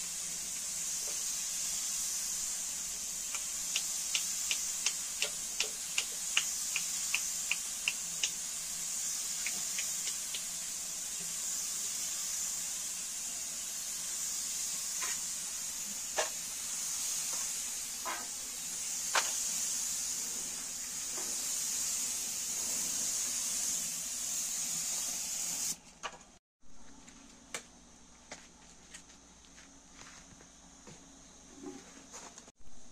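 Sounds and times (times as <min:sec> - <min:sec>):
spray gun hissing: 0:00.0 - 0:25.8.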